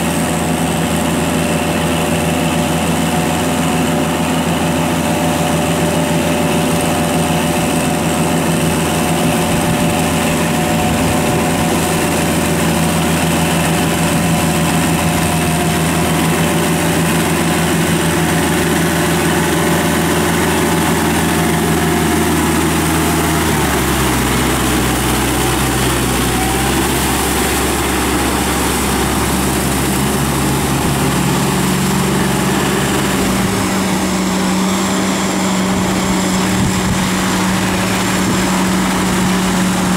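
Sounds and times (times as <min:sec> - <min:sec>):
second tractor engine: 0:00.0 - 0:39.9
tractor diesel engine under load: 0:00.0 - 0:39.9.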